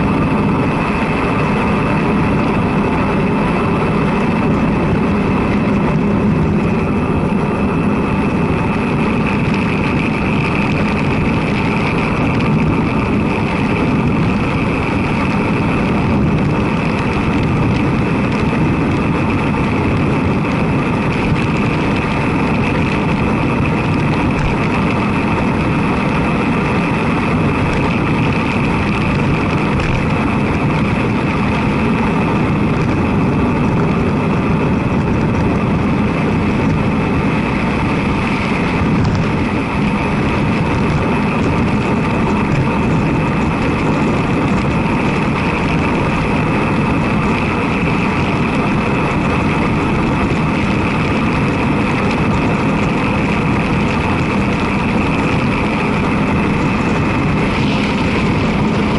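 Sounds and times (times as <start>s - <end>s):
wind and road noise: 0.0s - 58.9s.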